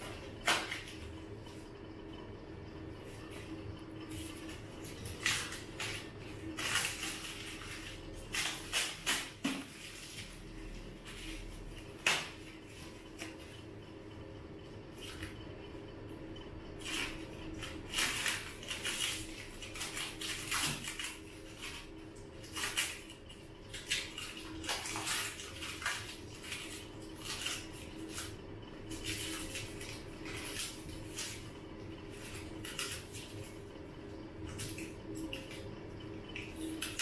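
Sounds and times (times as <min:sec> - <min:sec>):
steady low hum: 0:00.0 - 0:37.0
plastic wrap and cardboard crinkling: 0:04.2 - 0:13.5.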